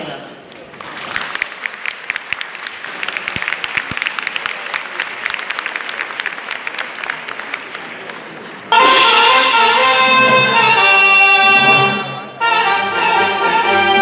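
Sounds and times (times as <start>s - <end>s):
large audience applauding: 0.4s - 8.8s.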